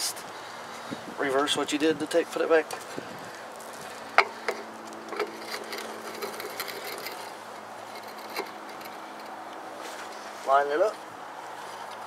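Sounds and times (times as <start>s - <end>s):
steady low hum: 2.8s - 10.4s.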